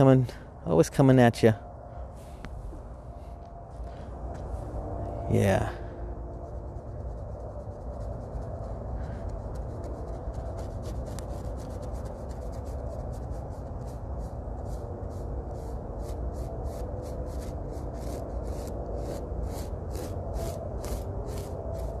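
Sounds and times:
low rumble: 0:01.6 - 0:22.0
paintbrush scrubbing on canvas: 0:06.3 - 0:22.0.

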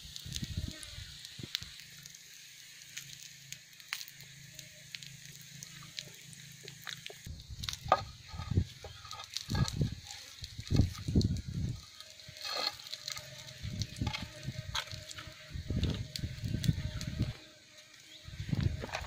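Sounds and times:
wood fire crackling: 0:00.0 - 0:19.0
sticks knocking and scraping: 0:07.7 - 0:10.0, 0:12.4 - 0:13.2.

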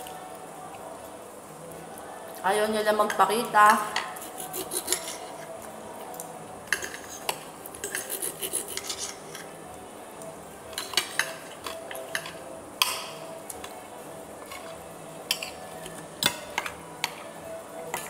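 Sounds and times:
cutlery scraping on ceramic plate: 0:04.0 - 0:05.5, 0:06.7 - 0:09.6.

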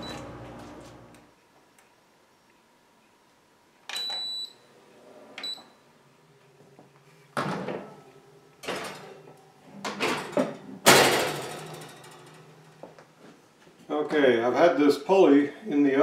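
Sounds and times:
oven beeping: 0:00.0 - 0:01.3
oven fan humming: 0:00.0 - 0:01.4, 0:07.8 - 0:15.2.

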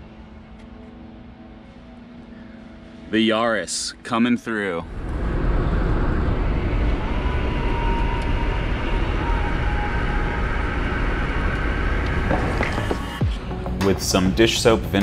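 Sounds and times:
car road and wind noise: 0:04.9 - 0:13.6
faint steady whistle: 0:05.4 - 0:12.4.

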